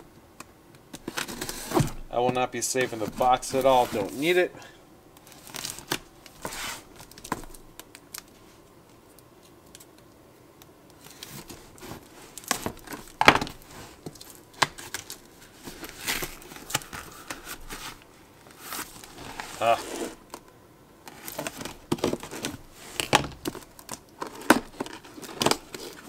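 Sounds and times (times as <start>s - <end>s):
cardboard and tape ripping: 1.0s - 2.1s, 2.8s - 4.4s, 5.2s - 7.6s, 11.0s - 20.3s, 21.1s - 26.0s
knife slitting cardboard box: 6.4s - 6.9s.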